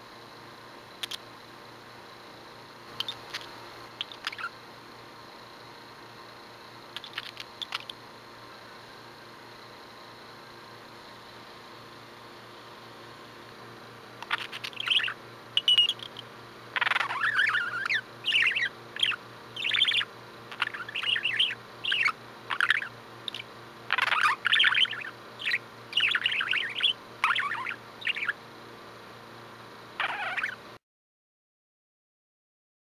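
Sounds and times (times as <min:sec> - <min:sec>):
budgerigar chirping and warbling: 0:04.0 - 0:04.6, 0:14.2 - 0:28.4, 0:30.0 - 0:30.6.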